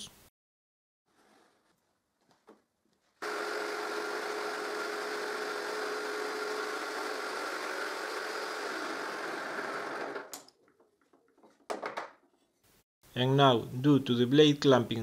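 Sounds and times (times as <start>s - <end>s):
jigsaw cutting wood: 3.2s - 10.4s.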